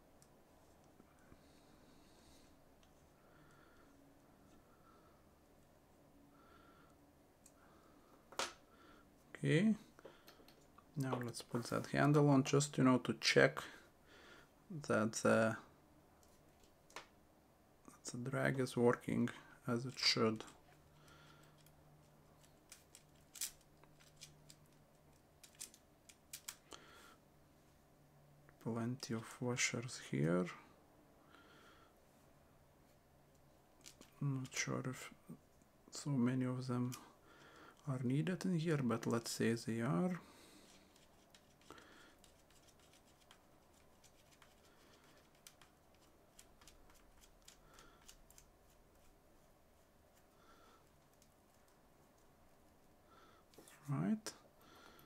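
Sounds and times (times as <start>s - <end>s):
small metal parts clicking: 22.4s - 26.6s.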